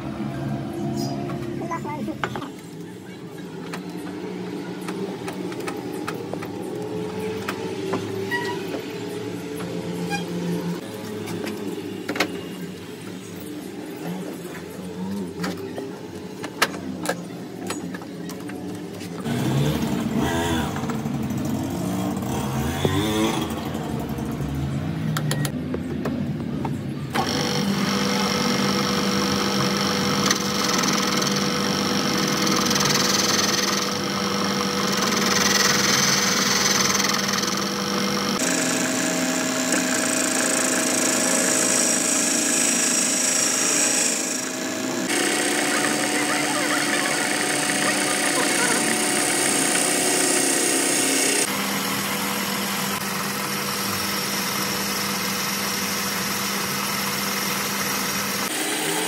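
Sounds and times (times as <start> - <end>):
engine revving: 19.2 - 25.6, 27.1 - 54.8
lathe humming and whining: 27.1 - 59.0
lathe tool cutting metal: 27.2 - 59.0.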